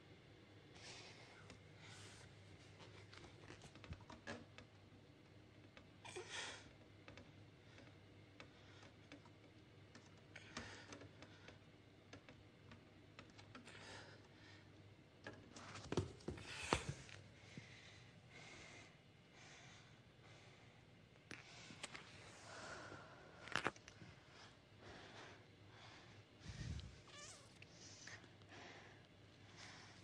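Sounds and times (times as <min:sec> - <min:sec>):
faint clicks and rustles: 0:01.4 - 0:06.0.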